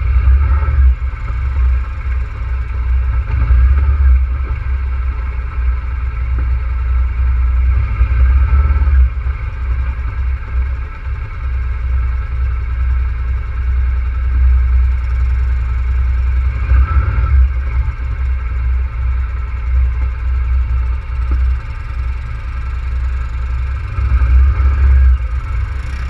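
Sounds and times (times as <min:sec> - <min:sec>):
atv engine running: 0:00.0 - 0:26.0.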